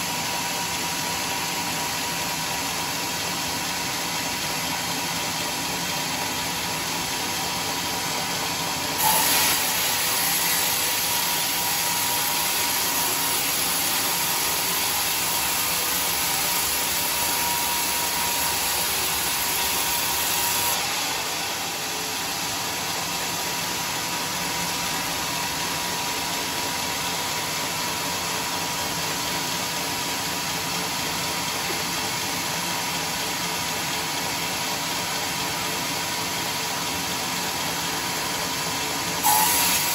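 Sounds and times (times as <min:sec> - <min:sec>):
band sawmill running: 0:00.0 - 0:39.9
saw blade cutting through log: 0:09.0 - 0:27.1, 0:39.2 - 0:39.9.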